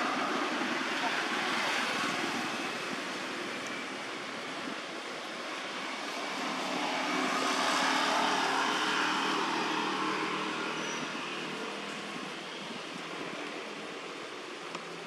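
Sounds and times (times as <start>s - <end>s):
vehicle engine hum passing: 5.5s - 13.9s.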